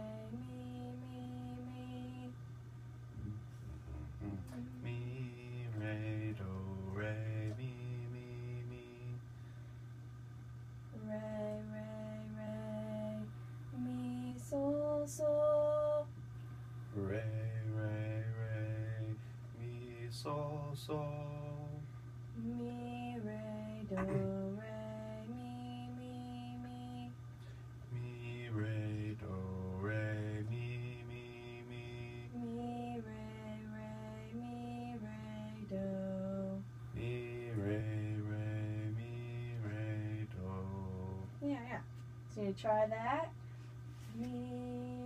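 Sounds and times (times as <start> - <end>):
low hum: 0.0 - 45.0
voices singing held notes: 23.9 - 24.5.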